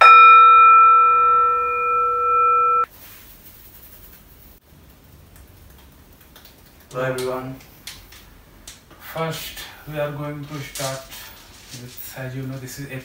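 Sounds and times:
singing bowl ringing: 0.0s - 2.9s.

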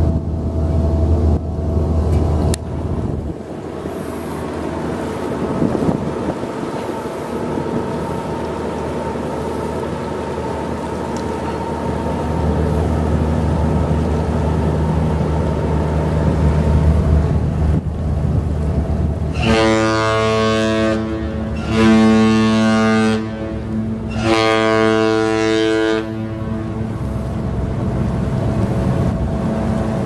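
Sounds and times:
low rumble of ship machinery: 0.0s - 30.0s
ship horn blasts: 19.2s - 30.0s.

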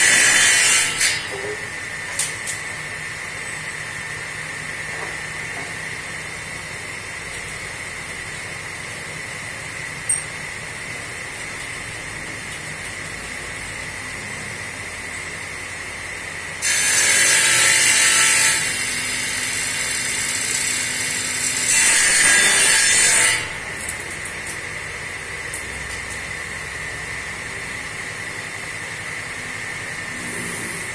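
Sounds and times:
circular saw cutting wood: 0.0s - 1.9s, 16.6s - 24.2s
saw blade humming: 0.0s - 3.0s, 16.6s - 30.9s.

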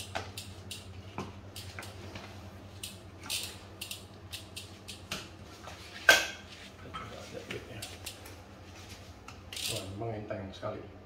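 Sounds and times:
folding bike clicks and rattles: 0.0s - 0.9s, 1.5s - 5.2s, 7.7s - 8.4s, 9.5s - 9.9s
steady low hum: 0.0s - 11.0s.

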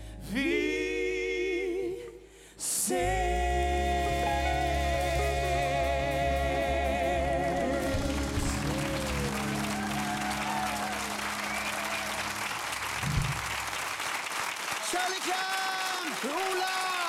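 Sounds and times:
audience applause: 7.6s - 17.0s.

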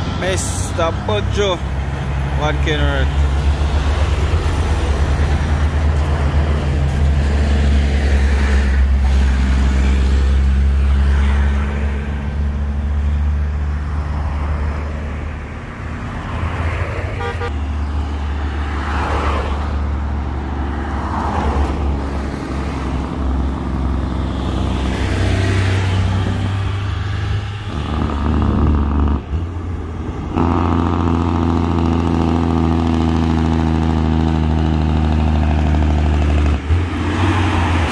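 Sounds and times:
diesel truck engine droning: 0.0s - 11.0s, 25.8s - 37.9s
big rig engine approaching: 0.0s - 13.9s
cars swishing past: 0.0s - 29.4s, 34.7s - 37.9s.

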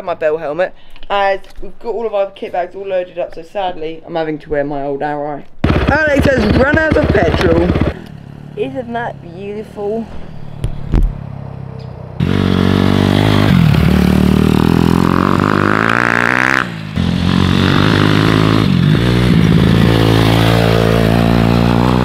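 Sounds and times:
motorbike engine revving: 5.6s - 9.5s, 10.1s - 22.0s.

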